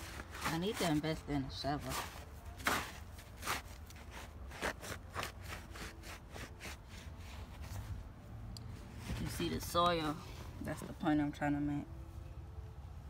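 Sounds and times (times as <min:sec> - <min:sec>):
boots crunching through snow: 0:01.8 - 0:05.7.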